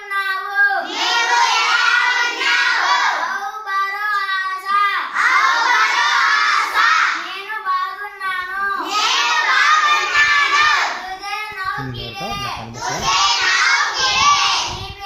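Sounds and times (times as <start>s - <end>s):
children chanting in unison: 0.1s - 15.0s
child calling out sing-song: 10.4s - 13.2s.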